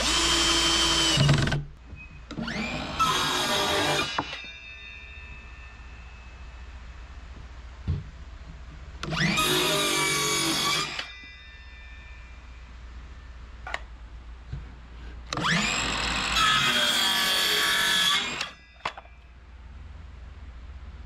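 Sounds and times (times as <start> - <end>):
circular saw cutting wood: 0.0 - 1.6, 2.3 - 5.0, 9.0 - 11.2, 15.3 - 18.6.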